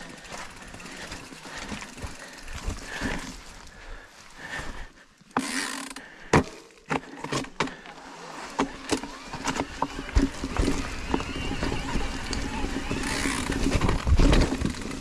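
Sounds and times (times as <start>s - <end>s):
bike tyres on dirt: 0.0s - 15.0s
bike knocks and rattles: 5.4s - 15.0s.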